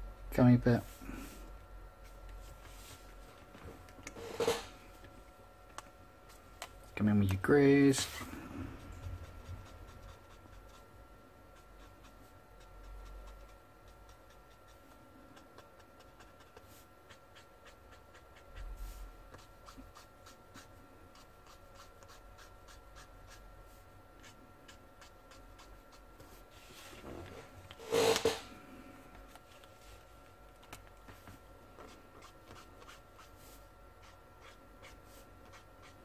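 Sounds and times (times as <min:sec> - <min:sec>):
marker shading on paper: 0:08.8 - 0:10.9, 0:11.6 - 0:23.4, 0:24.2 - 0:26.4, 0:31.9 - 0:36.0.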